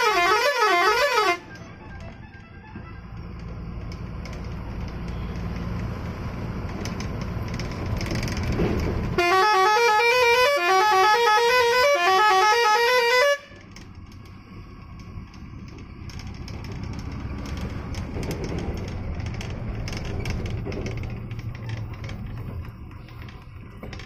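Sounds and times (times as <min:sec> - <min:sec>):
multi-note melody horn: 0:00.0 - 0:01.5, 0:09.2 - 0:13.6
road noise: 0:00.0 - 0:24.0
truck engine: 0:00.0 - 0:24.0.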